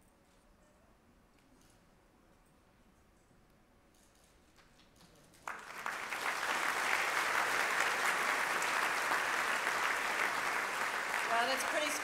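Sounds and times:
audience applause: 5.4s - 12.0s.

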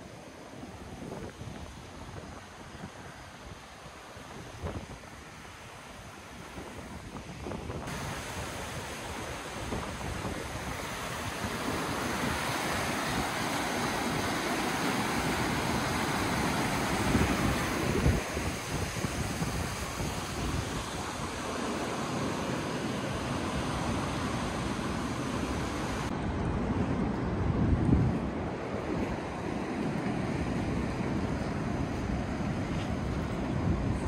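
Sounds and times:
wind buffeting microphone: 0.6s - 34.0s
whitewater rushing: 2.4s - 26.1s.

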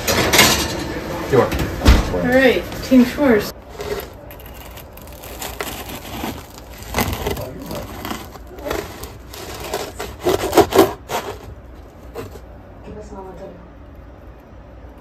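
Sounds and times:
bread knife sawing crunchy crust: 3.6s - 12.4s.

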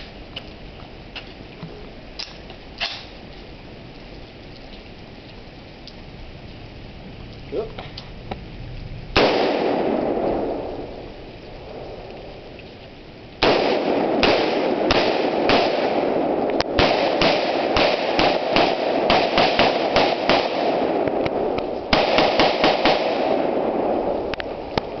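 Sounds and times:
rifle gunshots: 9.2s - 10.7s, 13.4s - 21.2s, 21.9s - 24.0s.

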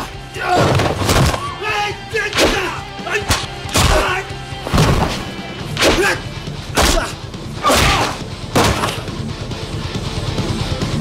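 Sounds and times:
background music: 0.0s - 11.0s
men grunting: 1.4s - 4.4s, 5.8s - 9.0s.

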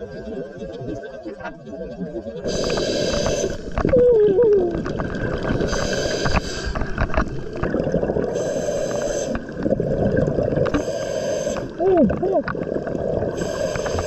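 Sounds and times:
exhaled bubbles gurgling: 0.0s - 14.0s
regulator inhale hiss: 2.5s - 3.8s, 5.6s - 7.2s, 8.3s - 9.6s, 10.7s - 11.8s, 13.4s - 14.0s.

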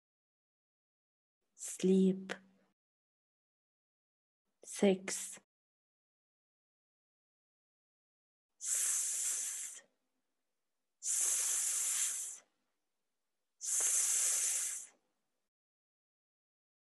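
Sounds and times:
person making hissing s sound: 8.6s - 9.9s, 11.0s - 12.5s, 13.6s - 15.0s.

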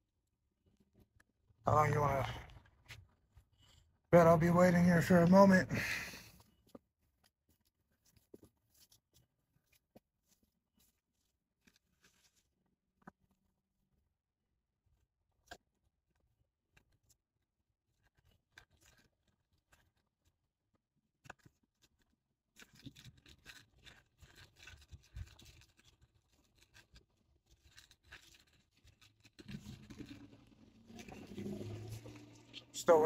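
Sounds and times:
faint clicks and rustling: 6.2s - 13.6s, 21.2s - 33.0s.

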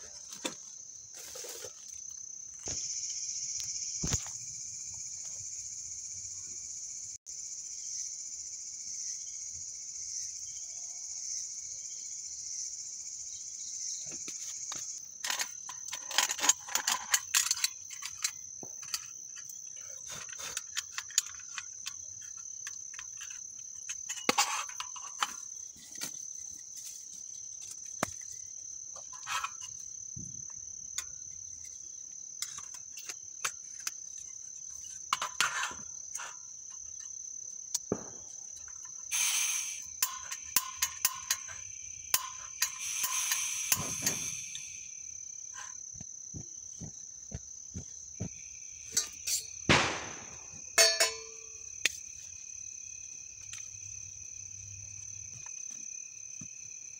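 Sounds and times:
crickets chirping: 0.0s - 56.9s
camp stove clicks and knocks: 14.7s - 26.2s, 32.4s - 34.3s, 34.9s - 39.1s, 40.0s - 44.3s, 48.9s - 52.0s
gas hissing: 39.1s - 41.4s, 42.2s - 44.9s
steel pot clanking on burner: 40.0s - 44.2s, 50.8s - 51.5s.

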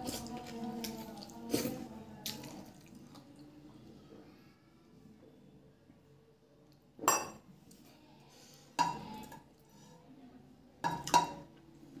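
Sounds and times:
tableware clinking on table: 7.0s - 7.5s.

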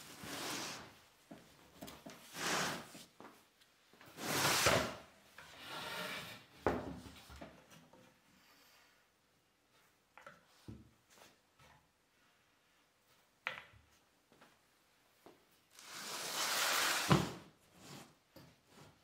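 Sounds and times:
wooden panel sliding with scrape: 4.2s - 6.5s.

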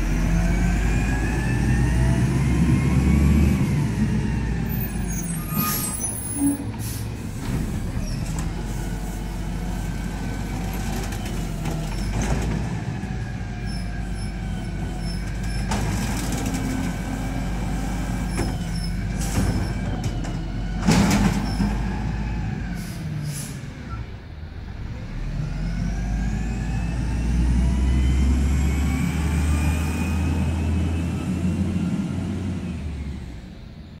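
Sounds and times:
air brake hisses: 5.6s - 7.4s, 22.8s - 23.7s.

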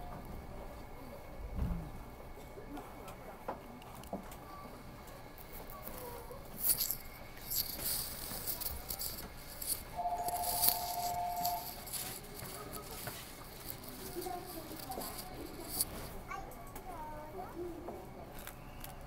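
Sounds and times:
faint voices: 0.0s - 19.0s
footsteps: 5.3s - 16.3s
two-note electronic tone: 10.0s - 11.7s.

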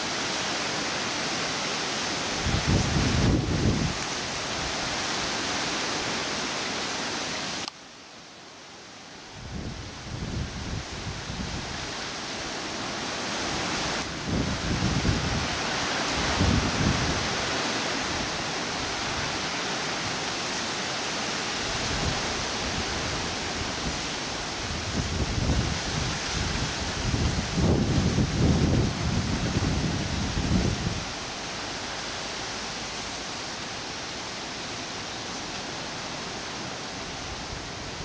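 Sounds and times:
wind rushing through trees: 0.0s - 38.0s
wind buffeting microphone: 2.4s - 4.0s, 14.1s - 17.6s, 21.8s - 31.2s.

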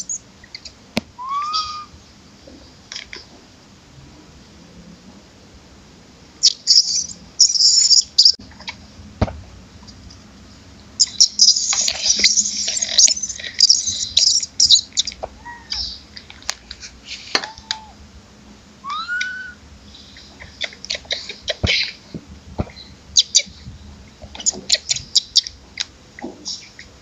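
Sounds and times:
macaque arching calls: 1.2s - 2.0s, 15.0s - 16.0s, 17.4s - 18.0s, 18.8s - 19.6s
macaques squealing: 1.2s - 2.0s, 15.0s - 16.0s, 17.4s - 18.0s, 18.8s - 19.6s.

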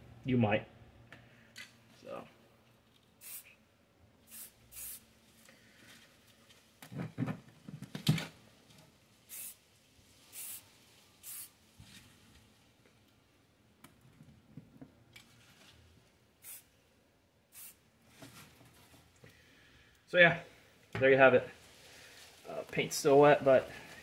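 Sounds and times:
spray can hisses: 3.2s - 3.6s, 4.2s - 5.1s, 9.2s - 11.6s, 16.4s - 16.7s, 17.5s - 17.8s
handling rustle and knocks: 18.1s - 19.2s.

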